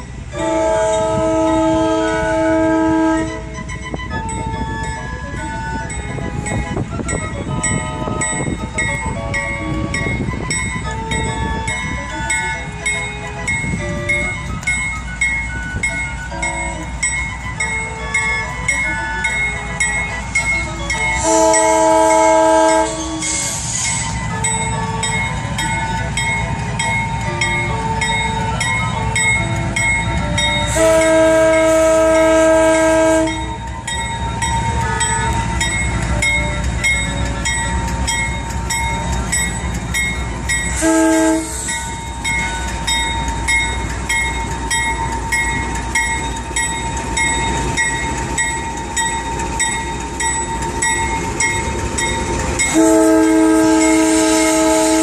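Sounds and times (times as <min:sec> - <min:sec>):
crossing bell ringing: 0:00.0 - 0:55.0
diesel locomotive rumble: 0:00.0 - 0:55.0
train air horn: 0:00.4 - 0:03.5, 0:21.1 - 0:25.0, 0:30.7 - 0:33.6, 0:40.7 - 0:41.8, 0:52.7 - 0:55.0.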